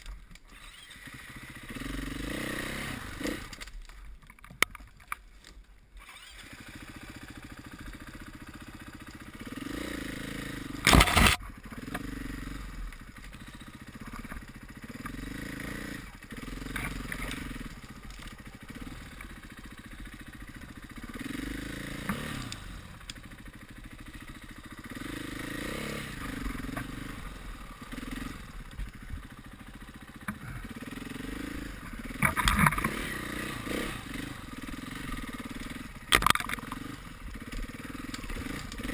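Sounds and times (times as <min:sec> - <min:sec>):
motorcycle engine running: 0:00.0 - 0:04.0, 0:06.1 - 0:38.9.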